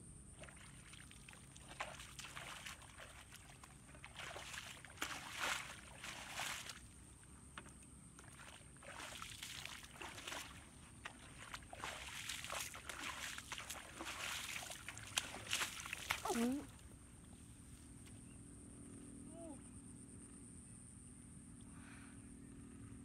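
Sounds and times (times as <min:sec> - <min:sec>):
feet wading through muddy water: 0:00.4 - 0:16.8.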